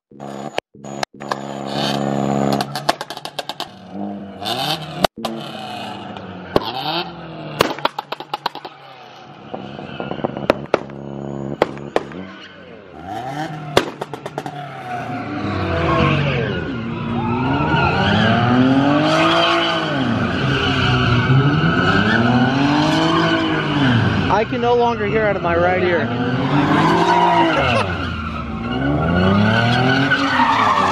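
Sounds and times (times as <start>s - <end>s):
car engine revving: 0.1s - 30.9s
sharp pops: 7.6s - 8.7s, 10.2s - 12.3s, 13.7s - 14.6s
tyre squeal: 26.3s - 30.9s.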